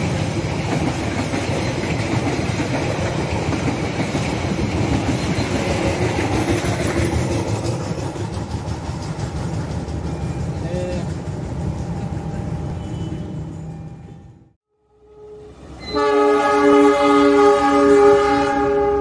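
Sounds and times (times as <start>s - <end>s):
train coaches rolling on rails: 0.0s - 14.6s.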